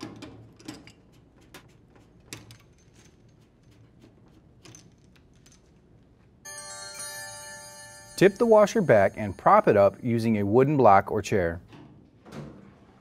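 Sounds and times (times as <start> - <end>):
bell-like chime: 6.5 - 10.8.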